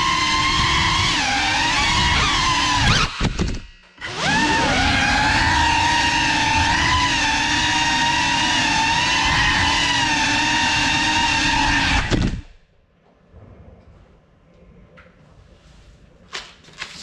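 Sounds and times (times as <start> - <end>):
drone propellers whining: 0.0 - 12.6.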